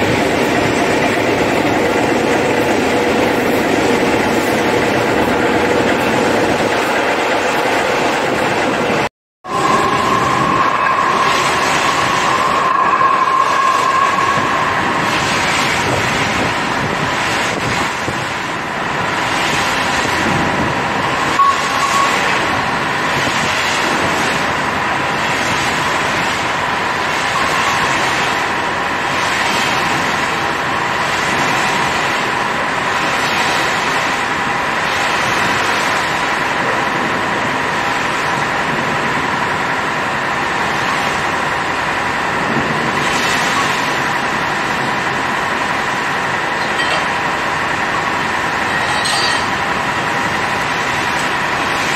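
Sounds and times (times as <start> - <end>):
constant high whine: 0.0 - 51.9
high-pressure water jet blasting: 9.5 - 39.3.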